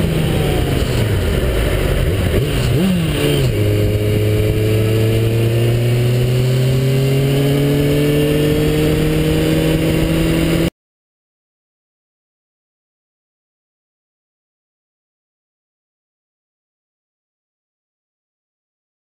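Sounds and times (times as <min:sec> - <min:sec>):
motorcycle engine running: 0:00.0 - 0:10.7
wind rush: 0:00.0 - 0:10.7.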